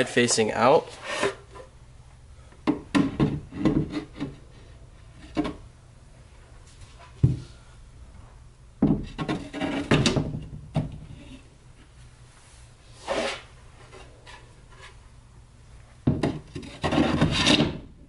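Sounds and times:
shelves scraping: 0.8 - 1.7, 9.0 - 10.4, 12.4 - 15.0, 16.1 - 17.9
wooden shelves knocking: 2.7 - 4.4, 8.8 - 11.1, 16.0 - 17.9.

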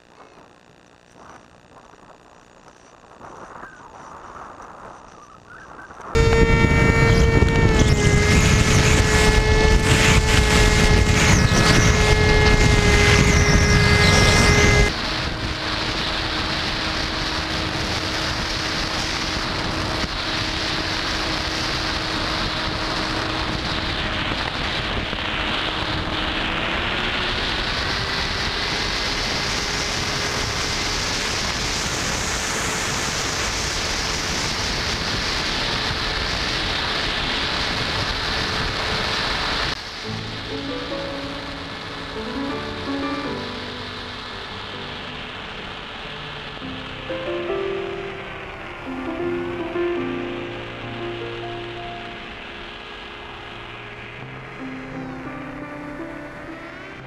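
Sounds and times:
wind rushing: 3.2 - 44.2
model airplane motor drone: 6.0 - 40.2.

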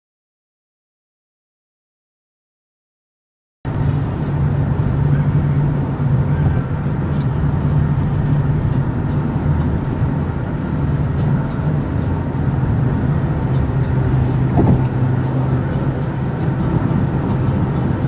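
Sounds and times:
car engine and tyres drone: 3.7 - 18.0.

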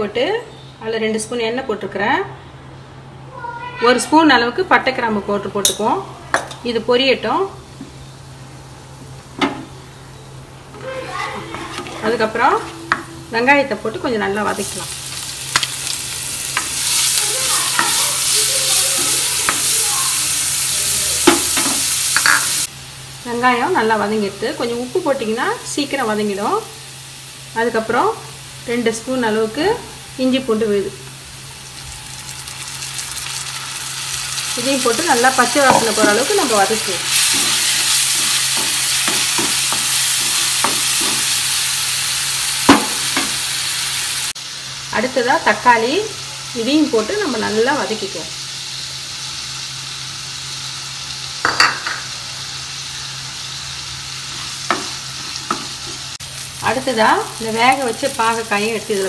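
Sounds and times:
onions sizzling in hot oil: 10.8 - 59.0
spatula knocking against pan: 38.2 - 41.3.

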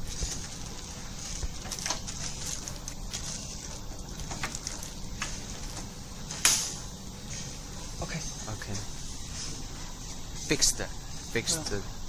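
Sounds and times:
plastic wrapping crinkling: 0.0 - 6.2.

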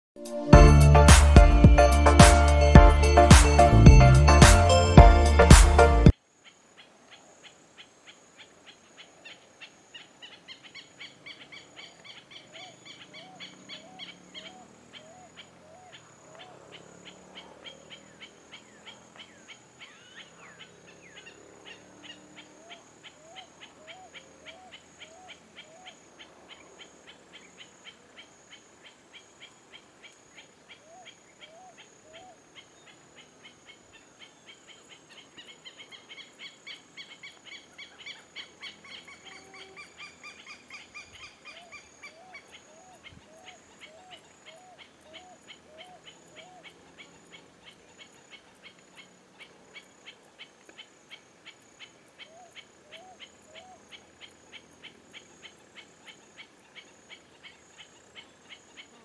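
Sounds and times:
low hooting notes: 0.2 - 6.1
high chips or ticks: 0.5 - 5.9
high insect drone: 7.8 - 59.0.

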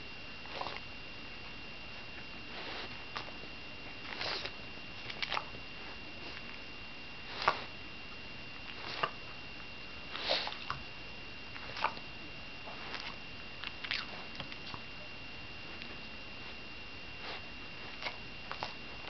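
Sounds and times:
dog sniffing: 0.5 - 0.8, 2.5 - 3.3, 4.1 - 5.5, 7.2 - 7.7, 8.7 - 9.2, 10.1 - 10.8, 17.2 - 18.8.

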